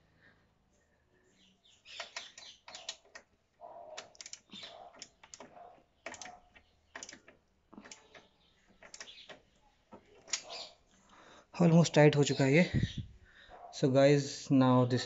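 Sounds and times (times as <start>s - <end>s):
ratchet wrench clicking: 4.0s - 4.4s.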